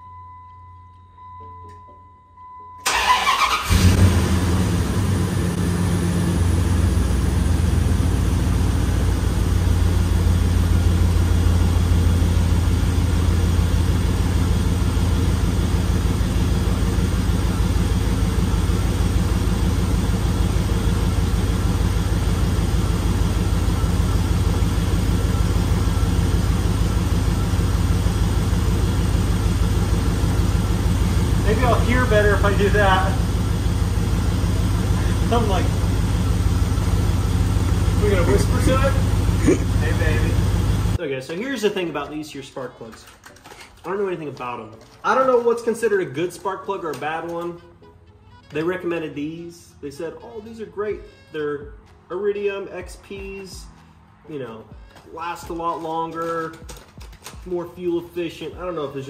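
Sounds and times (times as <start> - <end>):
engine cranking and starting: 2.8 - 5.9
engine idling: 2.8 - 41.0.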